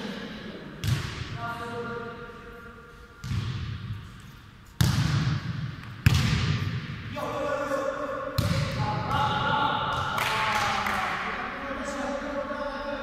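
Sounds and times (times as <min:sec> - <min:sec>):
football being kicked: 0:08.4 - 0:08.8.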